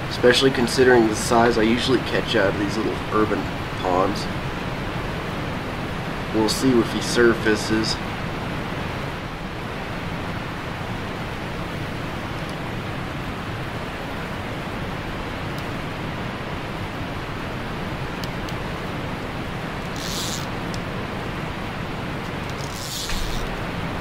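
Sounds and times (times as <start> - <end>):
steady rushing outdoor noise: 0.0 - 24.0.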